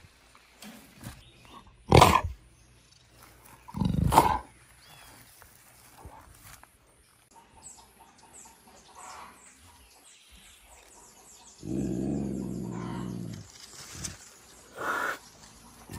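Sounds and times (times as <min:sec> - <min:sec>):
big cat growling: 0:01.9 - 0:02.4, 0:03.7 - 0:04.5, 0:11.6 - 0:13.5.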